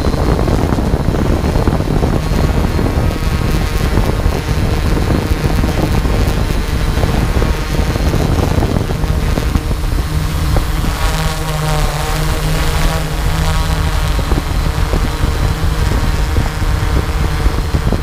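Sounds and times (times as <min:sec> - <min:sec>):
drone propellers buzzing: 0:00.0 - 0:18.0
wind on microphone: 0:00.0 - 0:18.0.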